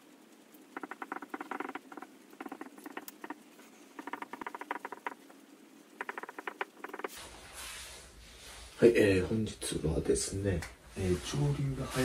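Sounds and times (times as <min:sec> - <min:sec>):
marker squeaking on writing: 0:00.7 - 0:05.4, 0:06.0 - 0:07.2.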